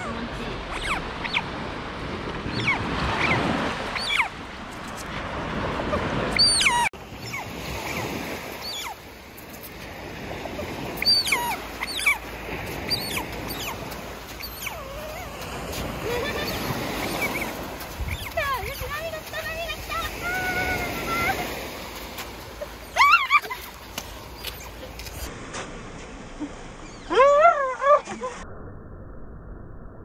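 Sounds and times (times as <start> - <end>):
small surf washing: 0.0 - 27.2
otter chirping: 0.7 - 1.5, 2.5 - 3.4, 4.0 - 4.3, 6.4 - 8.0, 8.6 - 9.0, 11.0 - 12.2, 12.8 - 13.8, 14.4 - 15.4, 16.0 - 19.0.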